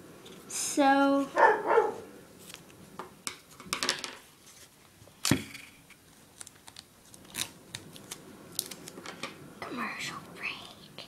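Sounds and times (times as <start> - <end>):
paper rustling and crackling: 2.4 - 2.8, 6.1 - 9.3.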